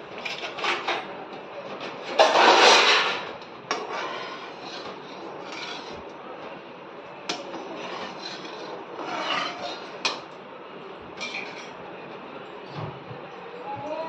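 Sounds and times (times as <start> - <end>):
metal spatula scraping pan: 0.2 - 1.1, 1.7 - 6.2, 7.3 - 10.4, 11.2 - 11.8.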